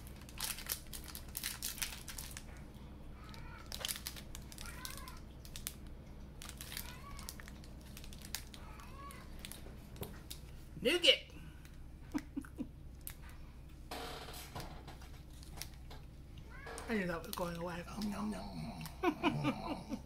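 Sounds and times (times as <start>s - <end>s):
plastic wrapper crinkling: 0.0s - 2.6s, 3.2s - 10.6s, 15.0s - 15.9s
cat meowing faintly: 3.2s - 3.8s, 6.8s - 7.4s, 8.6s - 9.4s.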